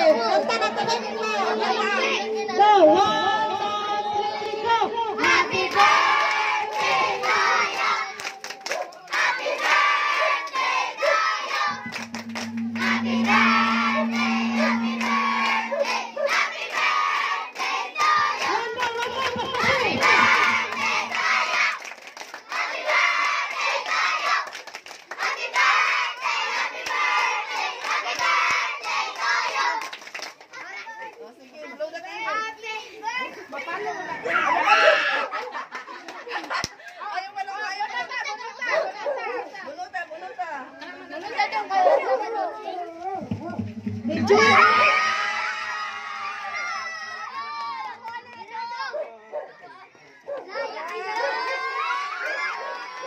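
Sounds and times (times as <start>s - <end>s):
children clapping: 5.2s - 13.1s, 16.7s - 31.2s, 35.4s - 37.0s, 47.4s - 48.7s
children singing: 19.6s - 21.5s
children shouting: 34.1s - 35.4s, 44.2s - 49.0s, 49.6s - 53.0s.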